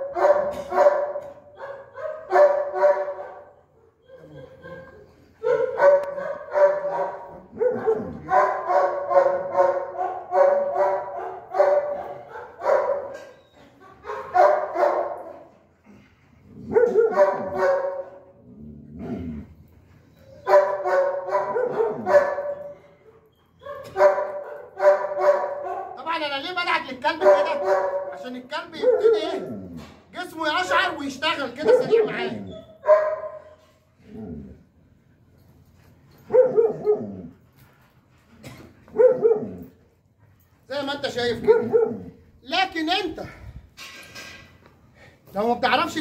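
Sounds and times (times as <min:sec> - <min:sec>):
dog barking: 0:00.0 - 0:03.6, 0:05.4 - 0:13.3, 0:14.0 - 0:15.5, 0:16.7 - 0:18.2, 0:20.4 - 0:22.7, 0:23.6 - 0:26.0, 0:27.2 - 0:28.2, 0:28.8 - 0:29.4, 0:31.6 - 0:33.5, 0:36.3 - 0:37.0, 0:38.9 - 0:39.6, 0:41.4 - 0:42.1.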